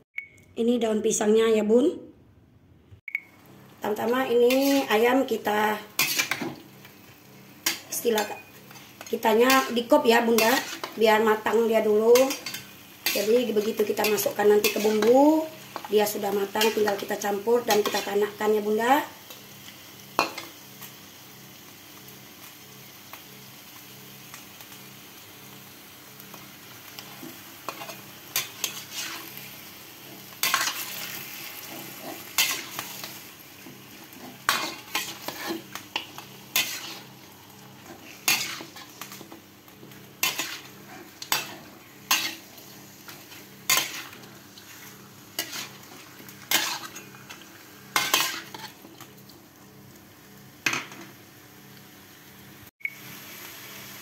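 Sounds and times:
chicken sizzling in a wok: 3.3 - 54.0
metal spatula scraping pan: 4.4 - 5.0, 6.0 - 6.6, 7.6 - 11.0, 12.2 - 15.2, 27.7 - 29.4, 34.2 - 37.2, 37.8 - 39.3, 40.2 - 42.5, 43.1 - 48.8.

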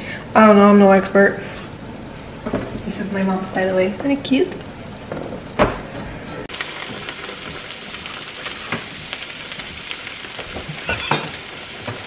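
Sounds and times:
food sizzling in pans: 6.4 - 12.0.

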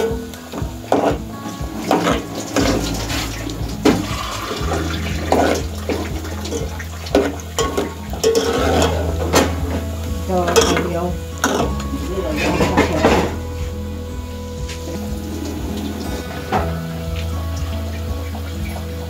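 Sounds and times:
ladle scraping metal pot: 1.9 - 13.5.

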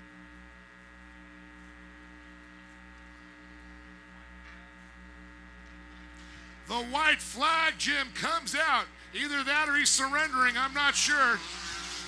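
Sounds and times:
pulsing low buzzing tone: 0.0 - 7.4
faint electrical hum: 0.0 - 12.0.

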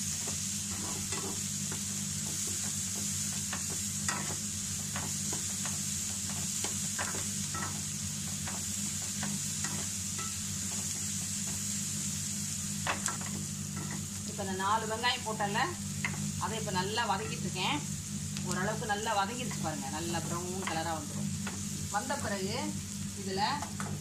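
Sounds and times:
onions sizzling in oil: 0.0 - 24.0
steady low hum: 0.0 - 24.0
spatula scraping and tapping pan: 0.7 - 11.6, 12.8 - 14.2.

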